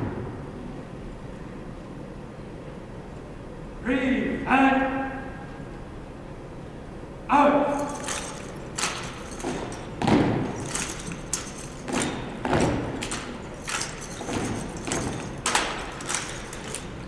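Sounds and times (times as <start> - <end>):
rifles thumping on wooden floor: 7.8 - 17.0.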